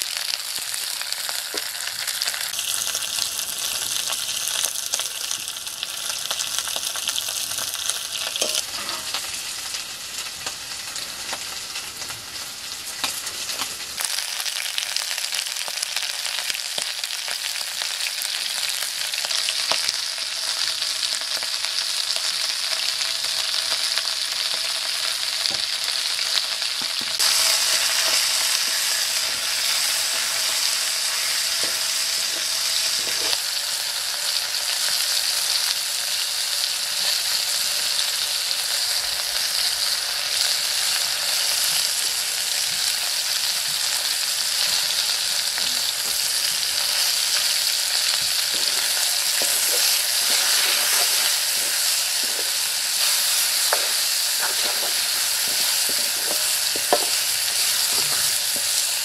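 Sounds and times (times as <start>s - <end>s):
meat sizzling in hot oil: 0.0s - 59.0s.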